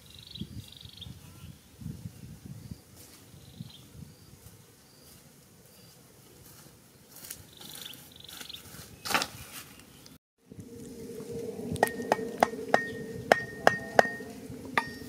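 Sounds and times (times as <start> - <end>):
footsteps through grass: 2.9 - 10.0
sticks clattering on ground: 7.2 - 9.8.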